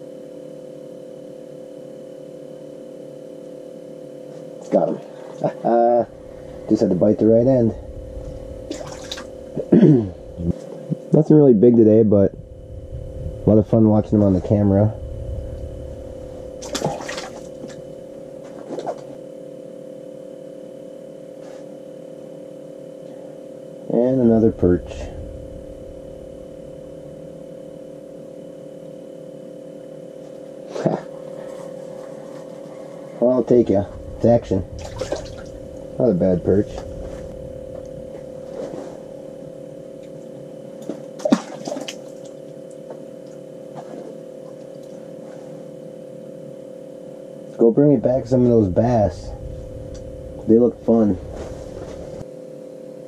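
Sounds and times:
steady hum: 0.0s - 53.0s
water splashing: 8.7s - 9.3s, 16.6s - 17.8s, 34.8s - 35.6s.

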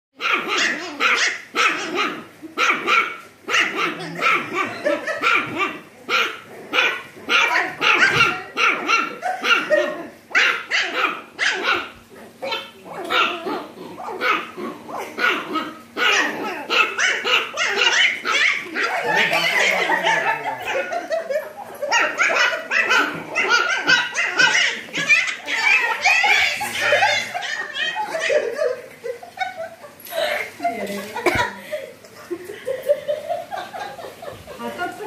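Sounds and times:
puppies barking: 0.2s - 30.0s.

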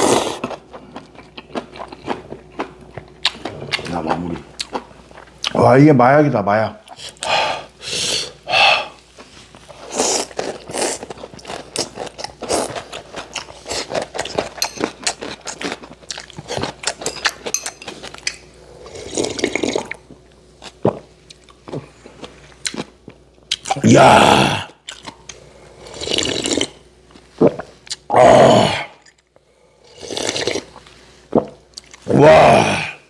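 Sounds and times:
wet chewing and lip smacking: 24.8s - 25.4s
noodles slurped: 25.8s - 26.8s, 29.9s - 30.9s.

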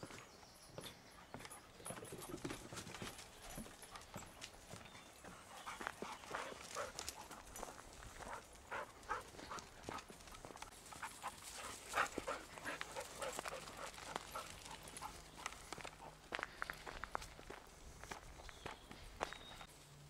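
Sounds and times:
footsteps on gravel: 5.6s - 19.7s.

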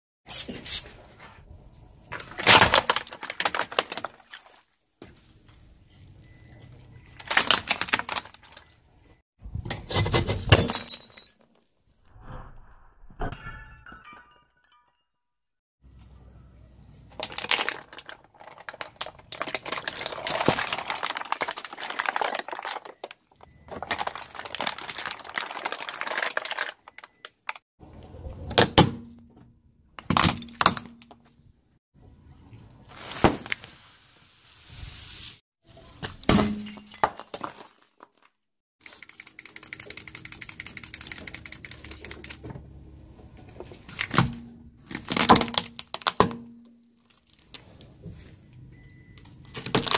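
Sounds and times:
tyre crunching plastic: 2.1s - 4.5s, 7.0s - 8.7s, 17.1s - 27.6s, 49.4s - 49.9s.

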